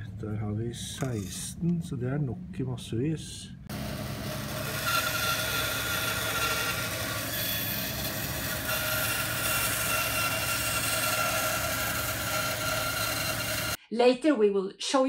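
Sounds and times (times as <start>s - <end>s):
workshop machine whirring: 3.7s - 13.8s.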